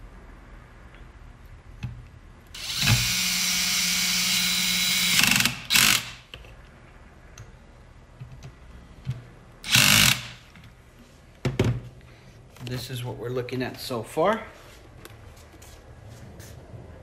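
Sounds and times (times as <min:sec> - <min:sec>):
cordless drill driving screws: 0:02.6 - 0:06.3, 0:09.6 - 0:10.4.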